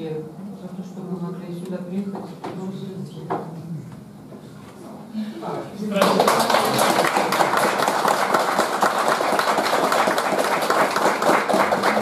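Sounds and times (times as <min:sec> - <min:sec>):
crowd applauding: 0:05.9 - 0:12.0.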